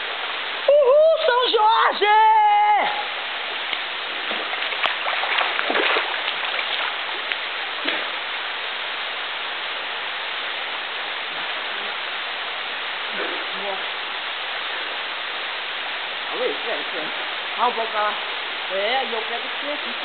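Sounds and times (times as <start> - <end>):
waterfall rushing into pool: 0.0 - 20.0
splashes of wading in water: 3.6 - 8.3.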